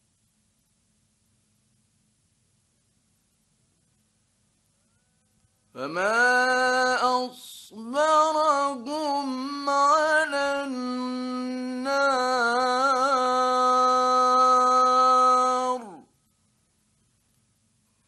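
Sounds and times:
man chanting recitation: 5.8s - 16.1s.

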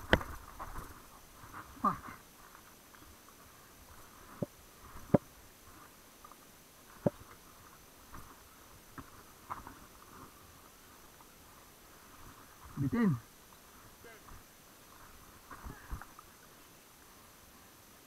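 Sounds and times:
mountain bike knocking and rattling: 0.0s - 0.9s.

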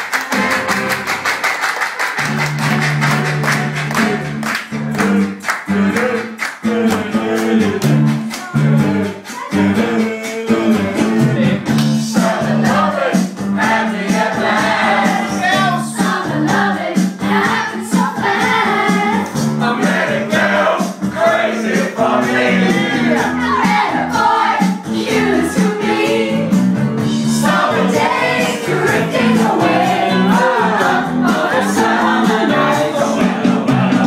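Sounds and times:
people clapping in time: 0.0s - 9.6s
guitar music: 0.2s - 1.4s, 2.2s - 12.9s
group of people singing: 3.4s - 34.0s.

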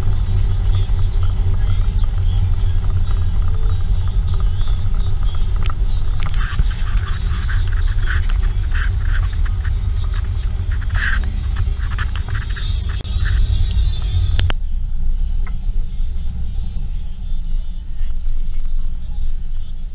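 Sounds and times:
rattles: 0.0s - 14.6s
low rumble of road and wind: 0.0s - 19.9s.

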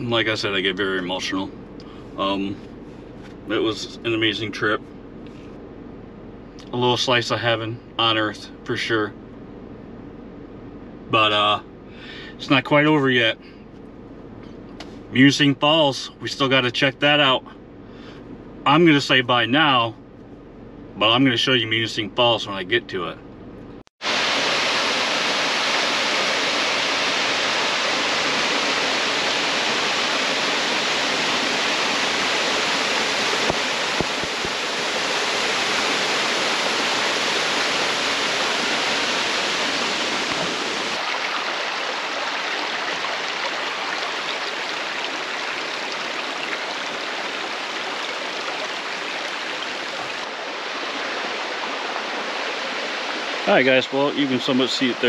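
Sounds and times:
waterfall rushing: 24.0s - 55.0s.

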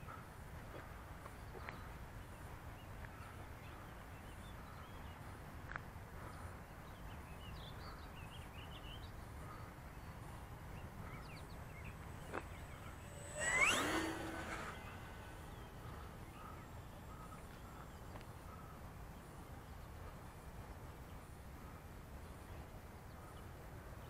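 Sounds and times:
birds chirping: 6.3s - 19.8s
steady low rumble: 9.2s - 18.1s
model plane motor whining: 10.9s - 18.0s.

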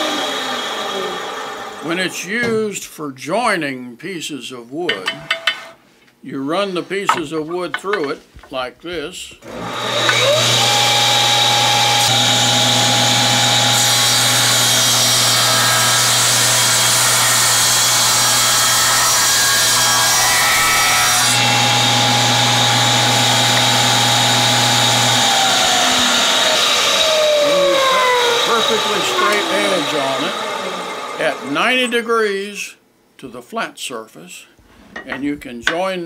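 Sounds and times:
table saw cutting board: 0.0s - 2.7s, 9.4s - 32.0s
saw blade spinning down: 20.5s - 31.9s.

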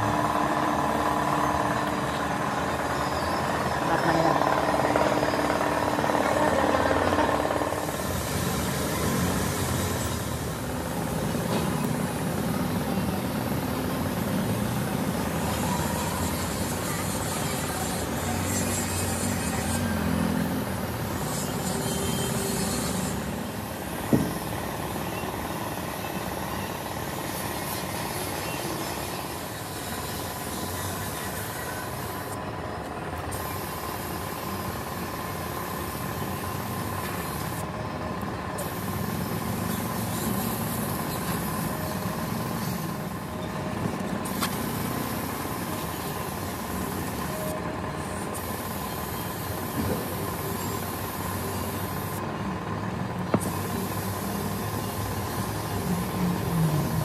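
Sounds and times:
spray gun hissing: 33.3s - 37.6s, 38.6s - 43.2s, 44.2s - 47.4s, 48.1s - 52.2s, 53.4s - 57.0s.

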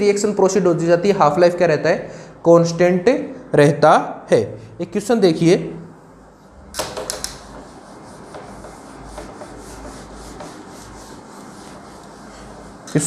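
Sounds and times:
cloth rubbing a whiteboard: 6.0s - 13.0s.

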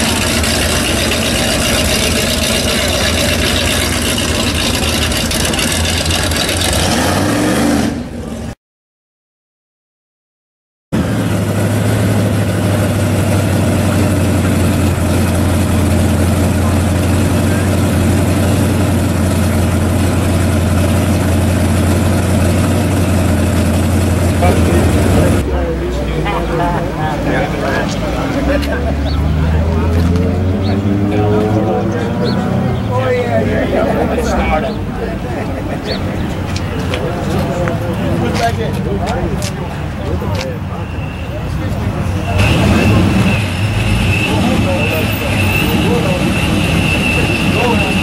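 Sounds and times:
engine revving: 0.0s - 8.3s, 11.0s - 34.8s, 42.0s - 48.0s
supercharged car engine running: 0.0s - 8.3s, 11.0s - 38.7s, 41.9s - 48.0s.

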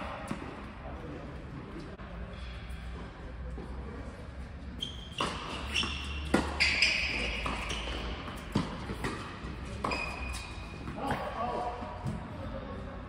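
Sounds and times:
tennis balls bouncing on court: 5.1s - 11.4s
tennis balls struck by racquets: 5.1s - 11.4s.

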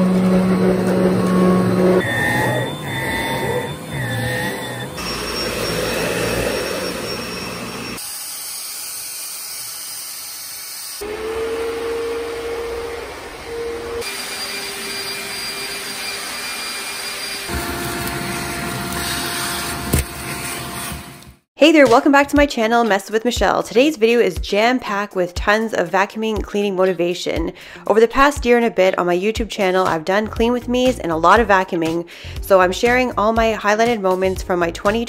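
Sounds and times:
vacuum cleaner motor whine: 0.0s - 21.4s.

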